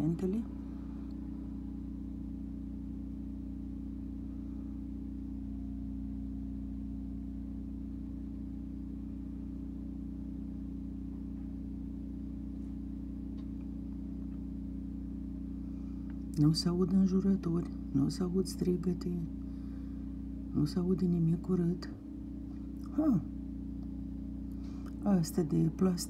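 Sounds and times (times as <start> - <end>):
truck engine idling: 0.0 - 5.4, 10.8 - 26.0.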